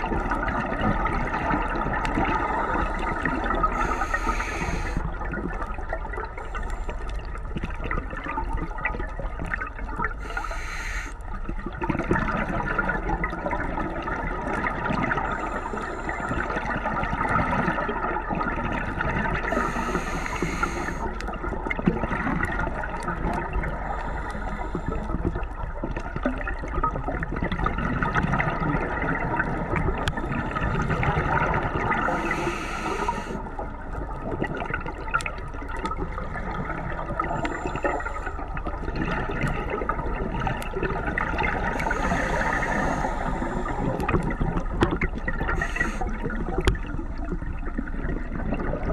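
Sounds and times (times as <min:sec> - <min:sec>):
hissing burst of bubbles: 0:00.0 - 0:07.1, 0:10.2 - 0:11.2, 0:18.7 - 0:25.4, 0:28.0 - 0:33.8, 0:35.9 - 0:46.9
underwater watery rush: 0:00.0 - 0:48.9.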